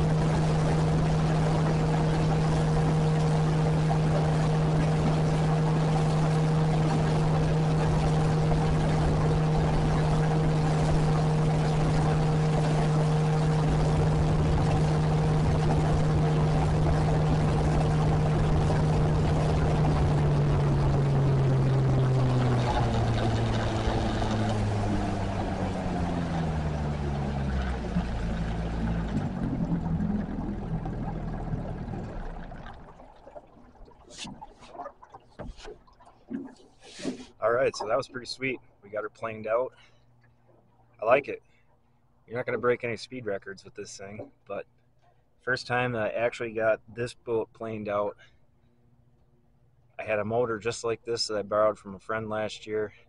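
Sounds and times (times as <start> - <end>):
water rushing: 0.0 - 39.6
outboard motor running: 0.0 - 46.8.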